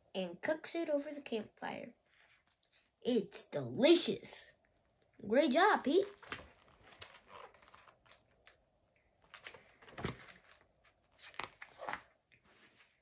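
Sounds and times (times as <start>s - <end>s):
book pages rustling: 5.9s - 13.0s.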